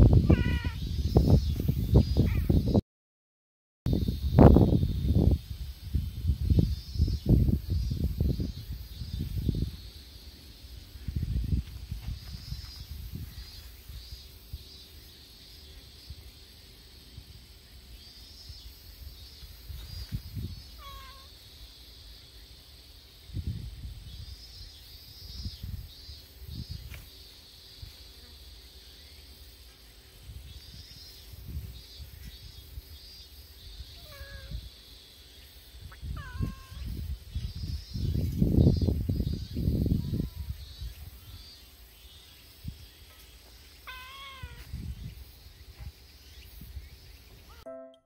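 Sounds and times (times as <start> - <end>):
kittens mewing: 0.2 - 0.8, 20.8 - 21.3, 33.9 - 34.6, 35.9 - 36.9, 43.8 - 44.7.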